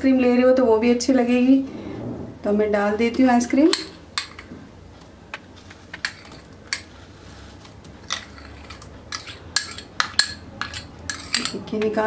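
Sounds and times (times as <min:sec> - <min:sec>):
metal spoon clinking against bowl: 0:08.1 - 0:12.0.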